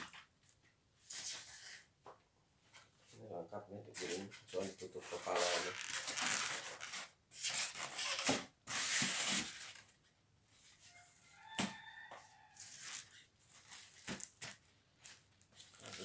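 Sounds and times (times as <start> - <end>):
styrofoam and cardboard scraping: 4.0 - 9.9.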